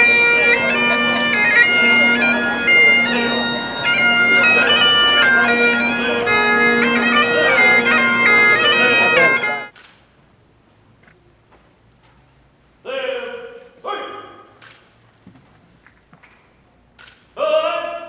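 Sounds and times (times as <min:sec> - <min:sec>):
bagpipes playing: 0:00.0 - 0:09.7.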